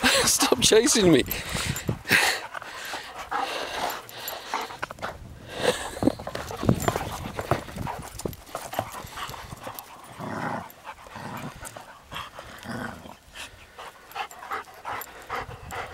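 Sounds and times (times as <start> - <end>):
dogs panting: 0.0 - 15.9
paws scuffling on dry grass: 5.8 - 12.6.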